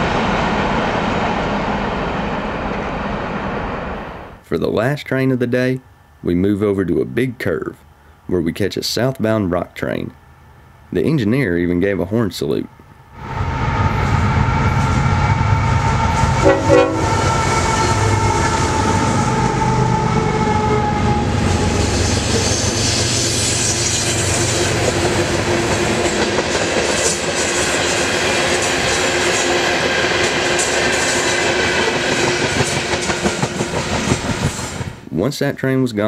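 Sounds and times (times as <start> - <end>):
locomotive engine rumble: 13.2 - 27.9
train horn: 13.6 - 24.8
train wheels clattering on rails: 21.6 - 35.0.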